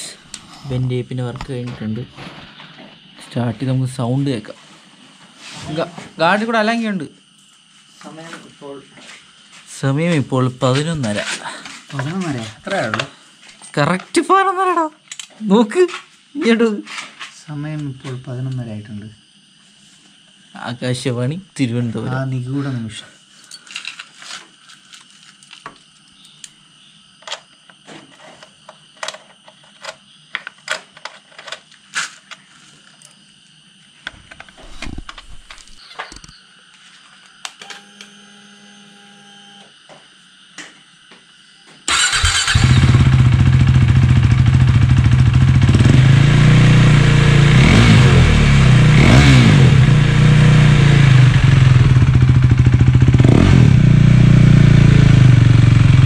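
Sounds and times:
motorcycle engine idling loudly: 41.9s - 56.0s.

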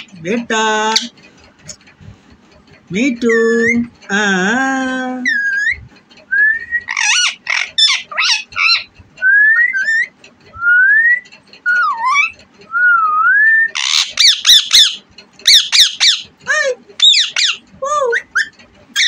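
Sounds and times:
parakeet harsh chatter: 0.0s - 1.8s, 5.2s - 5.8s, 6.8s - 10.2s, 11.7s - 12.5s, 13.7s - 19.0s
parakeet whistles: 6.4s - 16.2s
parakeet squawks: 6.9s - 10.1s, 11.7s - 12.4s, 13.7s - 16.3s, 17.0s - 19.0s.

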